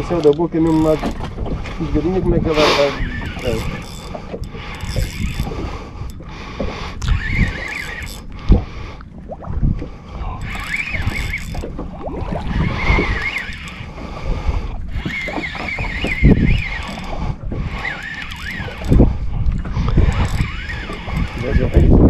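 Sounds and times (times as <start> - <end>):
wind buffeting microphone: 0.0 - 22.0
spinning reel squealing: 0.6 - 1.2, 2.2 - 5.5, 7.0 - 8.3, 10.4 - 11.8, 12.4 - 13.9, 14.9 - 17.1, 17.7 - 19.1, 20.0 - 22.0.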